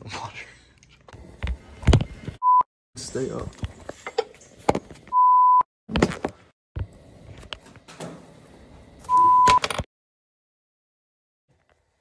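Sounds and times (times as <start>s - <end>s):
censor bleep tone: 5.2s - 5.7s, 9.1s - 9.6s.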